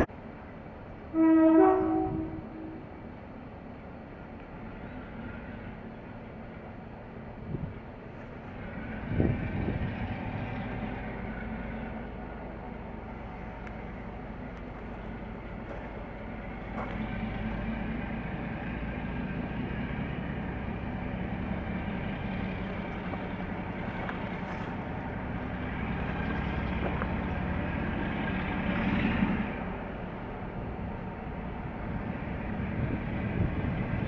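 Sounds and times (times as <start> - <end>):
distant diesel locomotive engine hum: 0.0 - 34.0.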